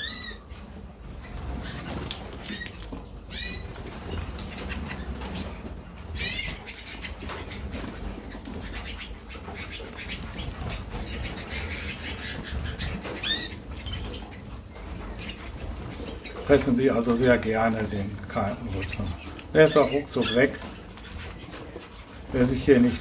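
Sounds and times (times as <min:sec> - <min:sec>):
canary chirps: 0:00.0 - 0:23.0
wing flutters: 0:00.0 - 0:23.0.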